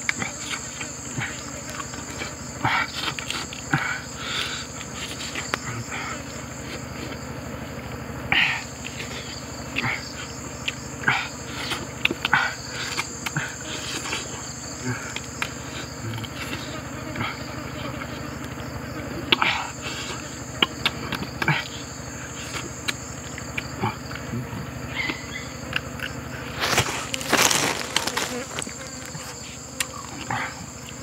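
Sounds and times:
high-pitched insect chorus: 0:00.0 - 0:31.0
crisp crunches of skin and bone: 0:26.5 - 0:29.3.

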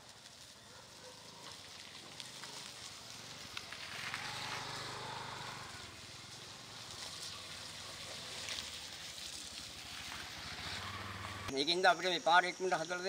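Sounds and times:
auto-rickshaw engine puttering: 0:01.3 - 0:11.5.

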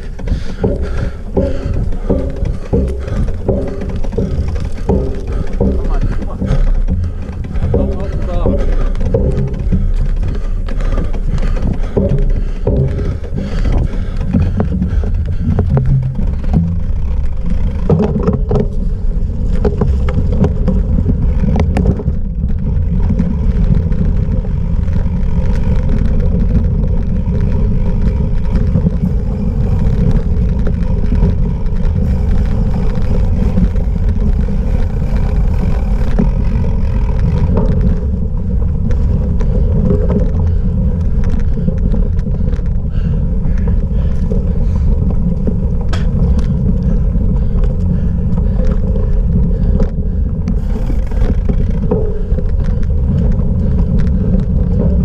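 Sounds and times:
sharp knocks from bumps: 0:00.0 - 0:24.1
bike tyre and frame rattle: 0:00.0 - 0:55.0
wind buffeting microphone: 0:00.0 - 0:55.0.

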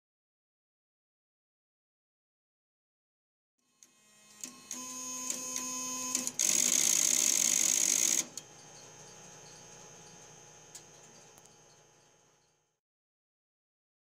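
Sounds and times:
steady hum: 0:07.2 - 0:12.8.

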